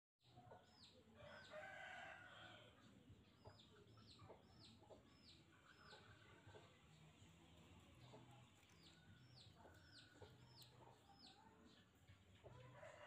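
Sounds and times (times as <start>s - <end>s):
chicken clucking: 2.7s - 13.0s.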